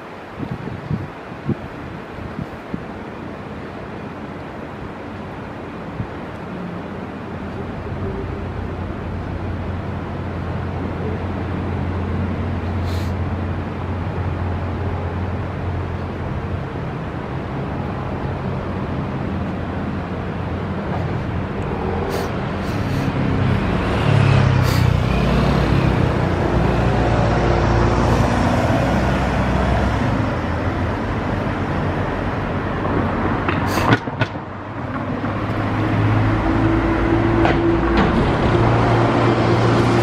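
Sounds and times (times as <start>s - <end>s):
passing cars hum: 0.0s - 40.0s
vehicle passing by: 20.0s - 33.8s, 34.8s - 40.0s.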